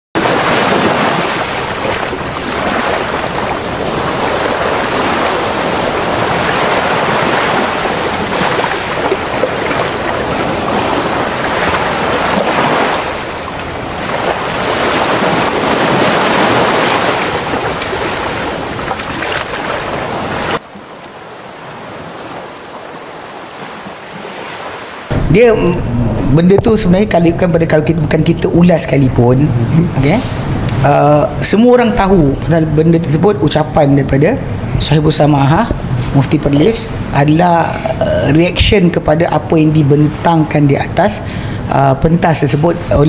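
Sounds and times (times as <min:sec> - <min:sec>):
ocean surf breaking on beach: 0:00.2 - 0:26.2.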